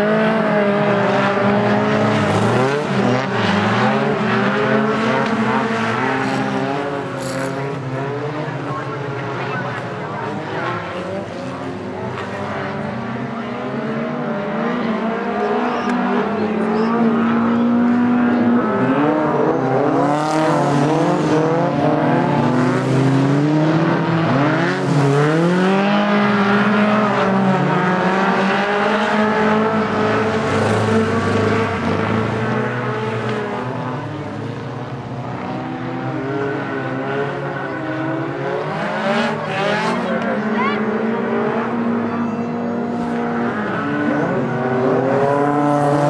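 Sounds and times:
racing car engines revving: 0.0s - 46.0s.

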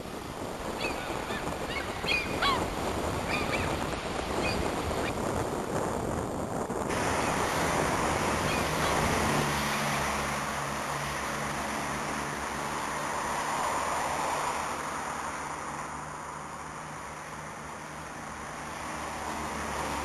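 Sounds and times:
wind noise on microphone: 0.0s - 16.1s.

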